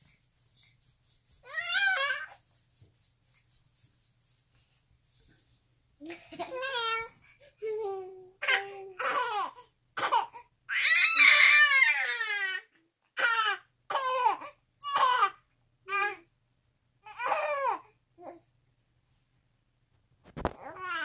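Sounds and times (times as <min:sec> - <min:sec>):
infant and girl laughing: 0:06.0 - 0:08.1.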